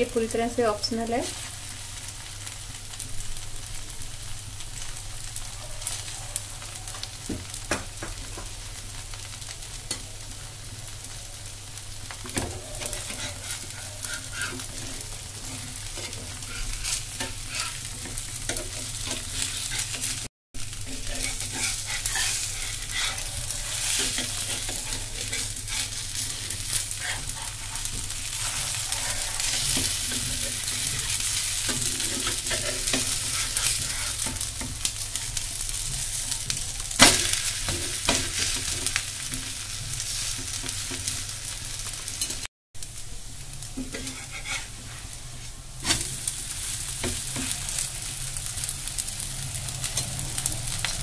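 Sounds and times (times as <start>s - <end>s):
pancake sizzling in oil: 0.0s - 51.0s
metal spatula scraping pan: 12.2s - 20.2s, 20.9s - 35.0s, 43.8s - 46.2s.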